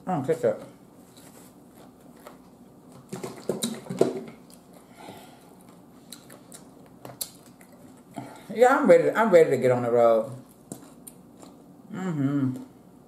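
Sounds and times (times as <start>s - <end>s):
low voice hum: 11.8s - 12.8s.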